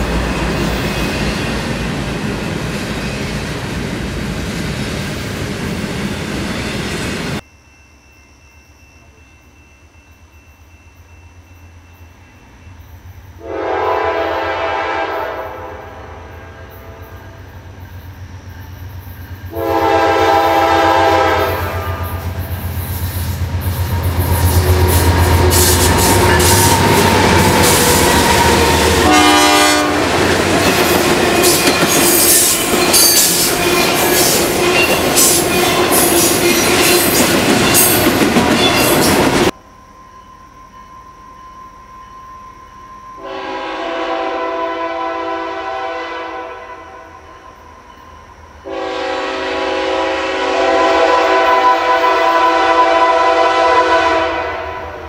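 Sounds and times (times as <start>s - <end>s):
train wheels rattling on rail: 0.0s - 7.4s, 17.0s - 39.6s
train air horn blasts: 13.4s - 17.5s, 19.5s - 22.6s, 23.9s - 30.3s, 43.2s - 47.2s, 48.6s - 55.0s.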